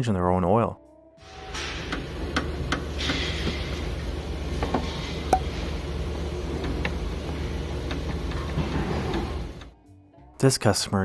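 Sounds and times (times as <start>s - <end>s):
low hum: 1.2s - 9.7s.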